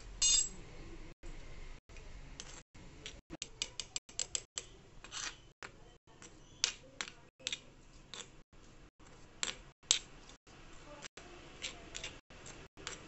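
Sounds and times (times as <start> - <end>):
spoon scraping stone bowl: 4.3 - 5.6, 11.6 - 13.0.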